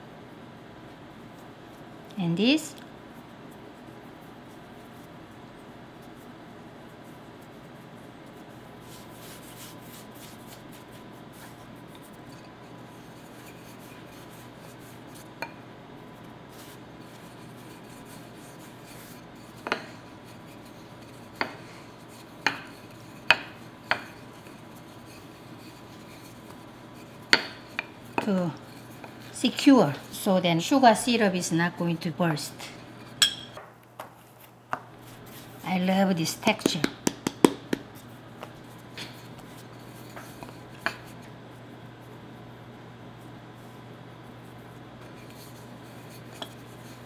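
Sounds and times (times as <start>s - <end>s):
low steady hum: 0.0s - 47.0s
hands rubbing dough: 0.2s - 33.2s, 33.9s - 47.0s
rolling pin knocking on wooden board: 36.6s - 37.9s.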